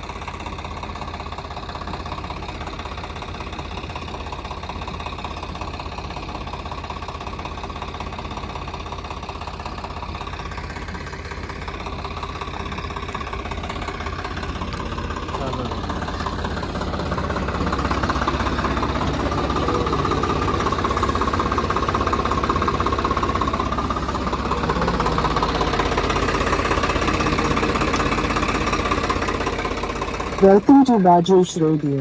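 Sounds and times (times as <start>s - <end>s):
tractor diesel engine idling: 0.0s - 32.0s.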